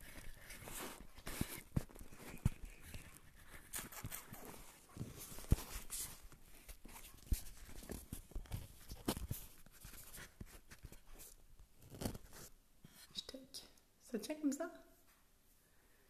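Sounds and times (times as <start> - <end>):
rubbing and rustling: 0.0 - 13.2.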